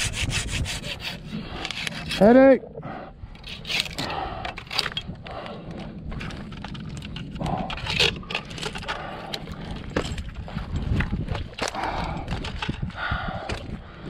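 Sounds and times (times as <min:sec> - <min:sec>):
branches and twigs snapping: 0:04.8 - 0:13.8.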